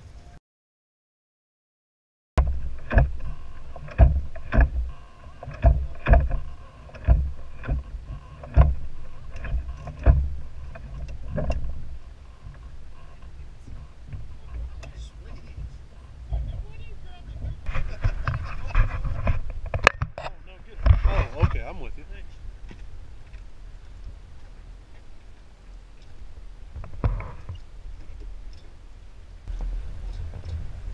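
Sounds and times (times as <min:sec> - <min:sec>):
water knocking on boat hull: 0:02.4 - 0:08.8, 0:09.4 - 0:12.8
wind rumbling on microphone: 0:02.4 - 0:30.9.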